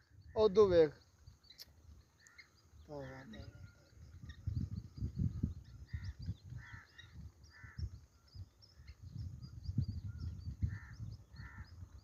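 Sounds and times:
small birds chirping: 0:00.0 - 0:12.0
harsh bird caws: 0:02.2 - 0:03.9, 0:05.9 - 0:08.0, 0:10.7 - 0:11.9.

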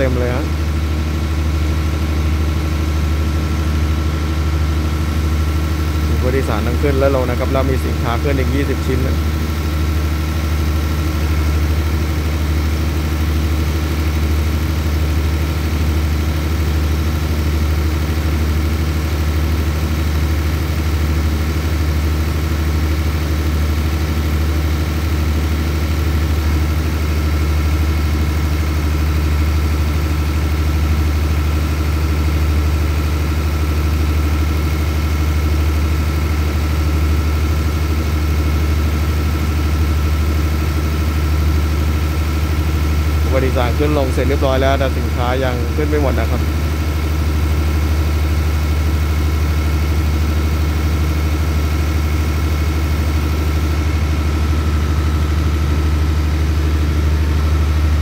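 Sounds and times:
diesel train engine idling: 0:00.0 - 0:58.0.

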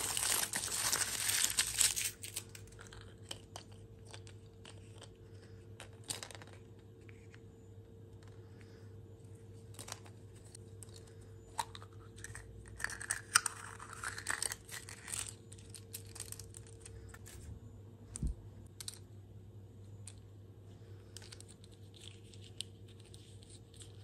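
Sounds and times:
paper crinkling: 0:00.0 - 0:03.2.

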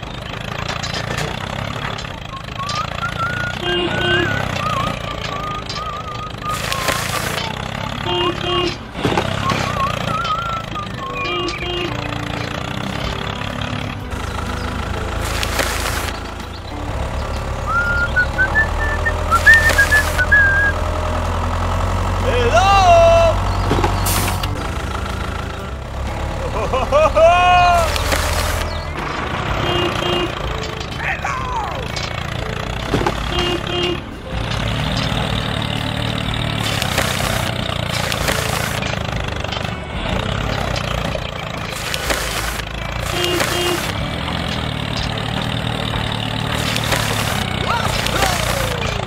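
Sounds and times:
heavy engine rumble: 0:00.0 - 0:49.0
toy excavator motor humming: 0:00.0 - 0:49.0
short high whistle-like tones: 0:02.3 - 0:03.6, 0:04.2 - 0:07.6, 0:09.4 - 0:11.6, 0:17.7 - 0:20.8
bucket rasping in sand: 0:06.4 - 0:07.6, 0:14.1 - 0:16.6, 0:18.4 - 0:20.7, 0:23.8 - 0:24.5, 0:27.7 - 0:28.9, 0:34.6 - 0:39.1, 0:41.6 - 0:49.0.

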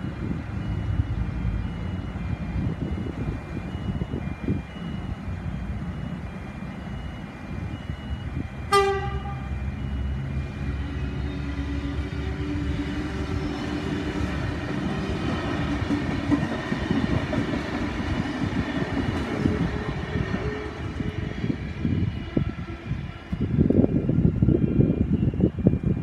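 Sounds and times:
train horn toot: 0:08.7 - 0:09.6.

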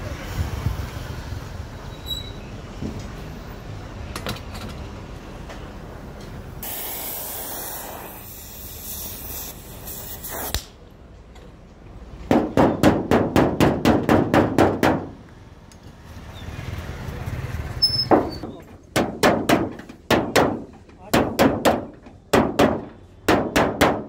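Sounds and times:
steady hiss: 0:06.6 - 0:10.8.

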